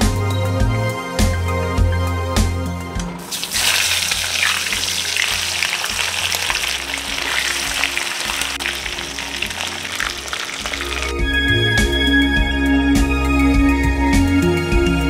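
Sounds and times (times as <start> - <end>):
soft background music: 0.0 - 15.0
fish sizzling in hot oil: 3.3 - 11.2.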